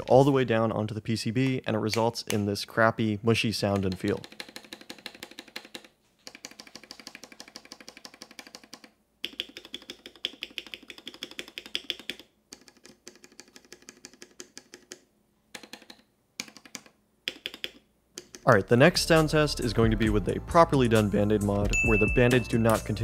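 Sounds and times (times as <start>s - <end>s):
keyboard keys clacking: 21.6s - 23.0s.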